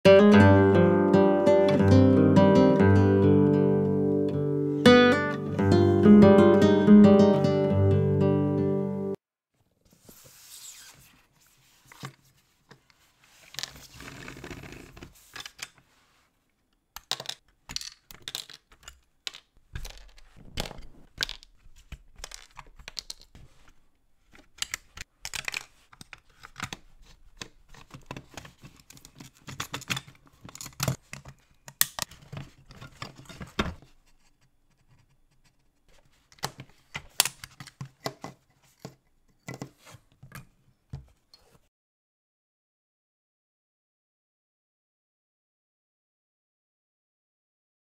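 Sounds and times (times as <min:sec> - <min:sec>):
clicks and scrapes of model car parts: 0:11.8 - 0:16.0, 0:17.0 - 0:40.5.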